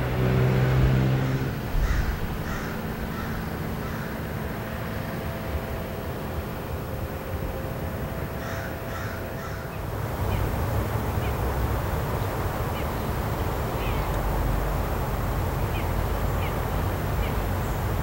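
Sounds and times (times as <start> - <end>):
steady rushing noise: 0.0 - 18.0
crow cawing: 1.7 - 4.4, 8.4 - 10.5
small birds chirping: 8.4 - 18.0.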